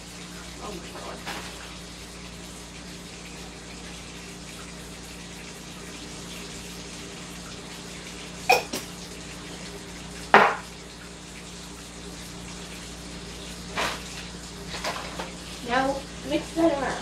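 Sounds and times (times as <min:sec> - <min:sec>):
kitchenware knocks: 0:10.3 - 0:10.6.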